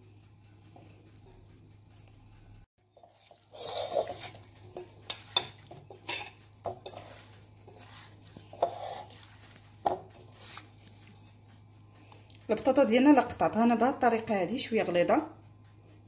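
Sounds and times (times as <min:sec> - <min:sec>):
hand mixing wet potato wedges: 0:02.8 - 0:13.4.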